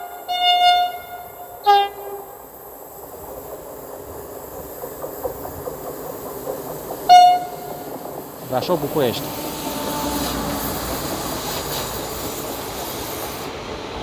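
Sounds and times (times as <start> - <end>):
train horn toot: 0.0 - 2.3, 7.1 - 7.7, 9.4 - 10.6
train wheels rumbling on rails: 0.0 - 14.0.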